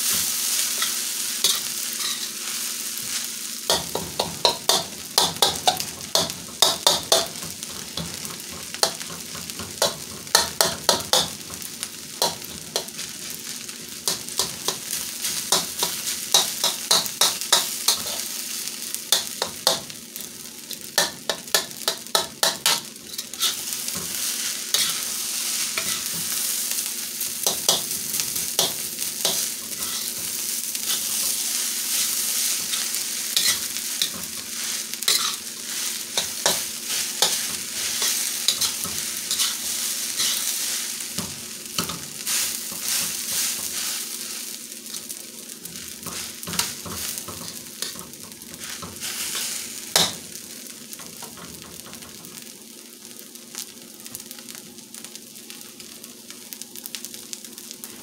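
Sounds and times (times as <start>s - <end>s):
rice sizzling in wok: 0.0s - 58.0s
metal spatula scraping wok: 0.1s - 11.6s, 14.0s - 18.4s, 21.3s - 26.6s, 27.4s - 44.4s.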